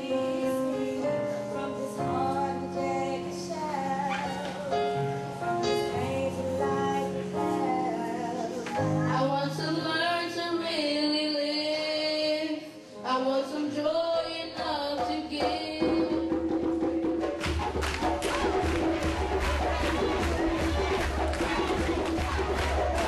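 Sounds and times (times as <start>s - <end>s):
boy singing into a microphone: 0.0s - 5.0s, 5.7s - 16.2s.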